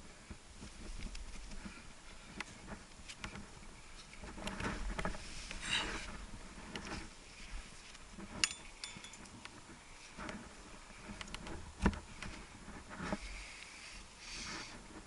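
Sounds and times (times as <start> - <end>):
ringing clink of climbing gear: 8.4 - 9.4.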